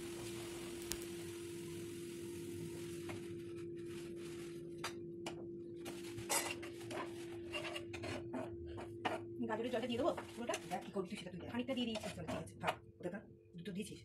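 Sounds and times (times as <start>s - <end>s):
steady hum: 0.0s - 10.3s
spatula scraping frying pan: 6.0s - 12.6s.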